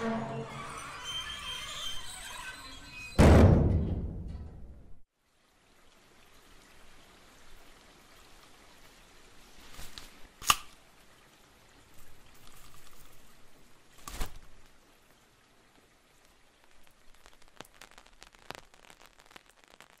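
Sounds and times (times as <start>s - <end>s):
scattered clicks and crackles: 12.0s - 13.4s, 16.1s - 20.0s.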